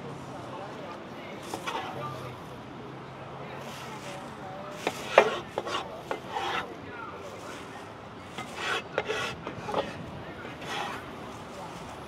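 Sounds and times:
cleaver scraping cutting board: 0:01.5 - 0:02.0, 0:04.8 - 0:06.8, 0:08.3 - 0:11.2.

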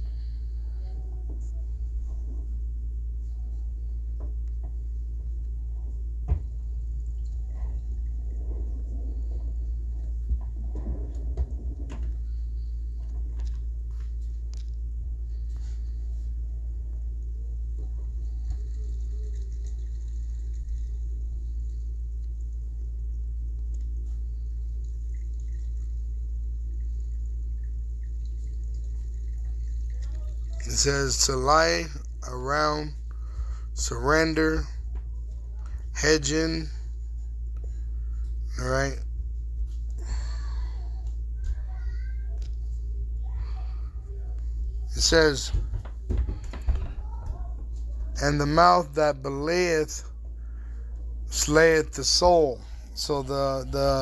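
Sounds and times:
low background hum: 0:00.0 - 0:54.0
soft thump: 0:06.2 - 0:06.6.

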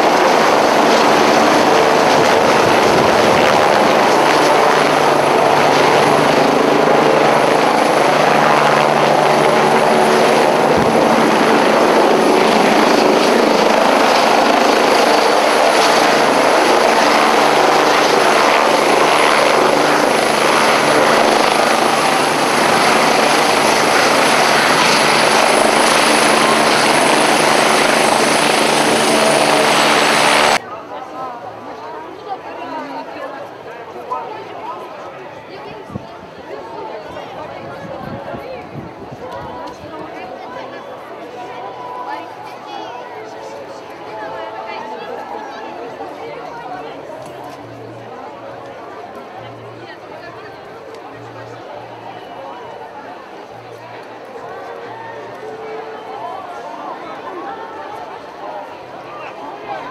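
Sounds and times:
helicopter rotors and turbines: 0:00.0 - 0:30.6, 0:31.4 - 0:59.9.

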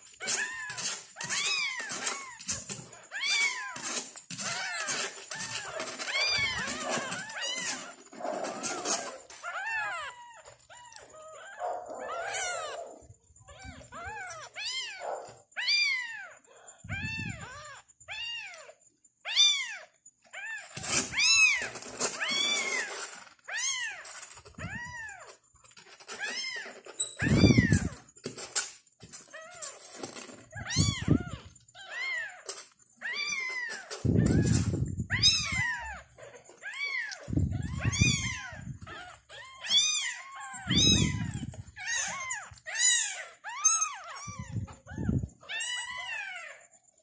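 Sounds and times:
kittens mewing: 0:00.0 - 0:22.9, 0:26.1 - 0:28.1, 0:30.3 - 0:46.6.

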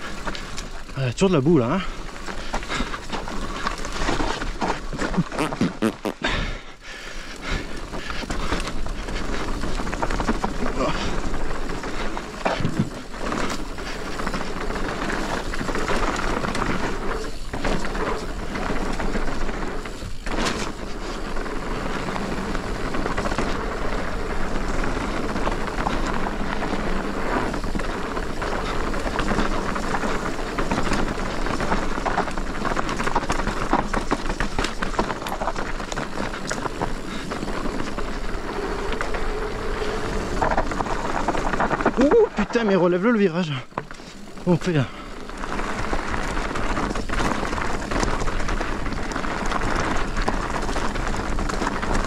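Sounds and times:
bike chain and frame clicking: 0:00.0 - 0:52.0
bike tyres rushing on dirt: 0:00.0 - 0:52.0.

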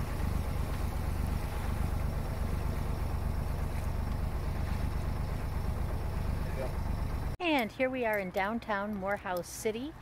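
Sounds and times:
boat diesel engine running: 0:00.0 - 0:07.4.

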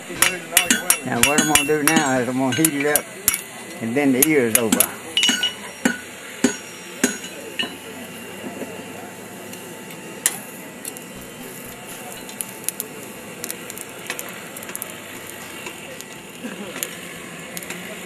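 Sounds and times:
forge fire crackling: 0:00.0 - 0:18.0
steady hiss: 0:00.0 - 0:18.0
sharp metallic clinks: 0:00.1 - 0:03.5, 0:04.2 - 0:07.9
coal clicking and rattling: 0:10.2 - 0:18.0.

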